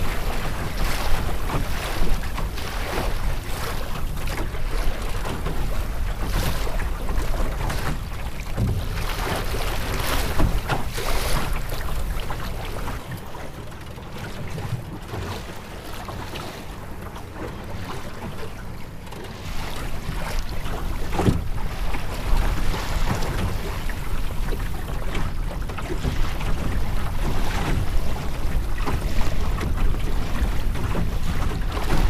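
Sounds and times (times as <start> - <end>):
wind buffeting microphone: 0.0 - 13.0
waves slapping against hull: 0.0 - 32.0.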